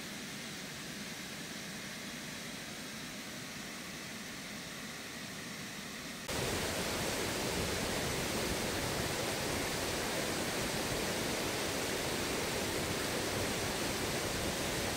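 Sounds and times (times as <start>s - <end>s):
waterfall rushing into pool: 6.3s - 14.9s.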